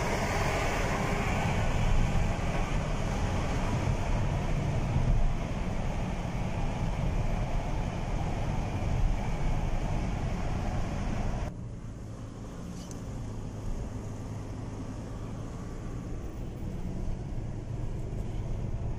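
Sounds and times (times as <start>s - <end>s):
car tyre and engine rumble: 0.0s - 18.9s.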